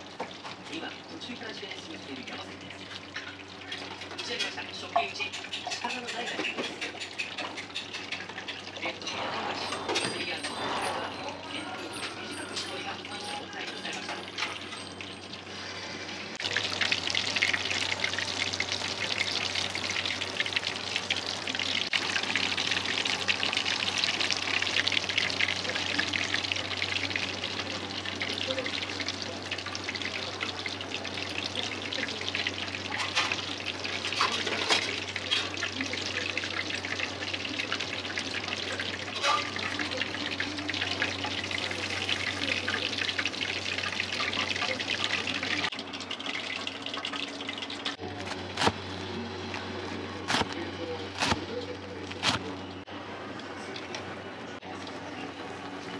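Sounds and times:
cutlet sizzling in hot oil: 0:15.0 - 0:52.8.

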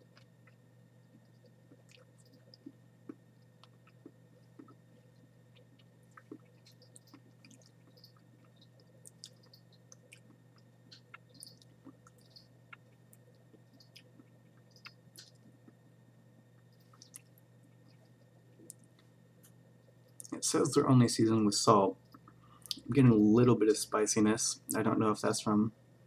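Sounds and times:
chewing crunches and clicks: 0:00.0 - 0:15.9, 0:16.5 - 0:20.4, 0:22.0 - 0:22.9
low steady hum: 0:00.0 - 0:26.0.

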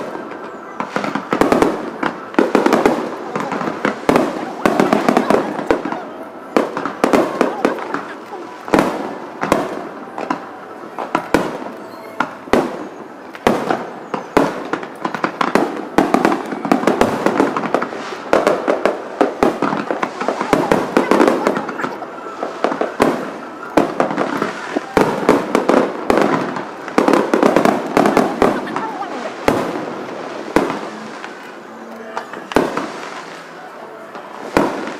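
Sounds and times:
fireworks bangs: 0:00.0 - 0:34.9
fireworks crackling: 0:00.0 - 0:34.9.

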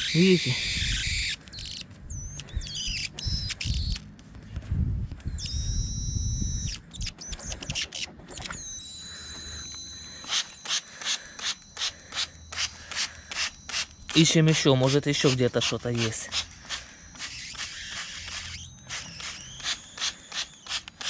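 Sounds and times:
birds whistling: 0:00.0 - 0:04.0, 0:05.3 - 0:09.6
trigger spray bottle spraying: 0:11.4 - 0:21.0.

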